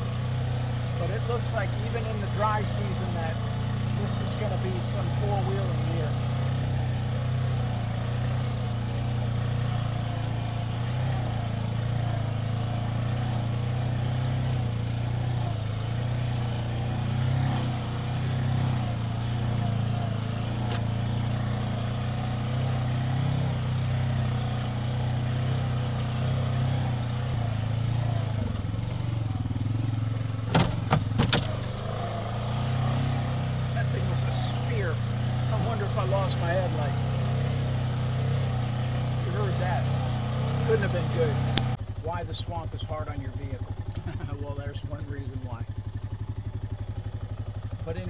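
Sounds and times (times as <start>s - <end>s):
atv engine running: 0.0s - 48.0s
sharp knocks: 30.5s - 31.6s.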